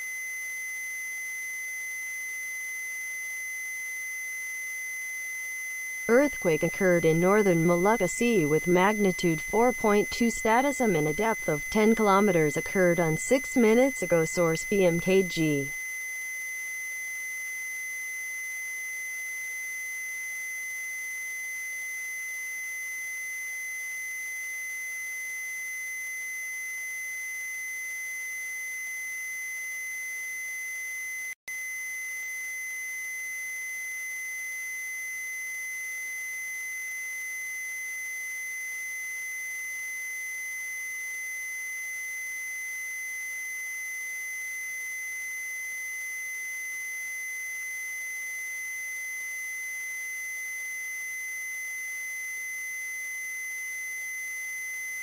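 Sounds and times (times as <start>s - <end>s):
steady high electronic tone: 6.1s - 15.8s.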